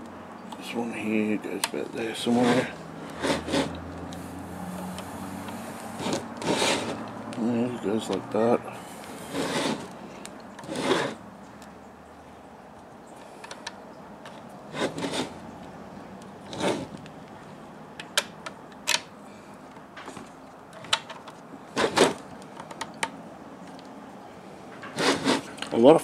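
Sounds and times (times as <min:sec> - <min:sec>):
plastic parts scraping: 0:01.5 - 0:04.3, 0:05.0 - 0:07.2, 0:09.0 - 0:11.2, 0:13.4 - 0:15.4, 0:16.5 - 0:17.1, 0:20.0 - 0:23.1, 0:24.8 - 0:25.8.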